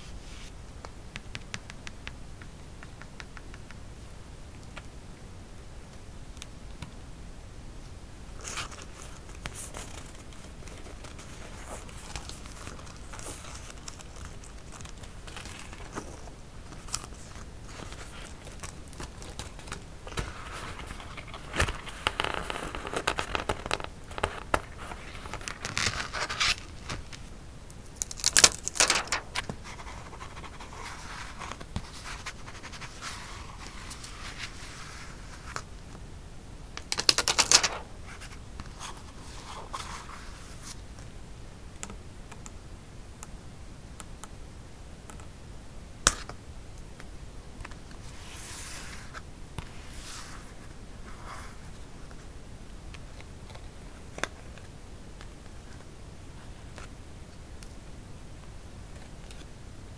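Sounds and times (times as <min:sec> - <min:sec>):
paper crinkling: 0:08.4 - 0:27.3, 0:27.9 - 0:35.7, 0:36.8 - 0:40.8
paper rustling and scraping: 0:08.4 - 0:27.3, 0:28.0 - 0:35.6, 0:36.9 - 0:40.8.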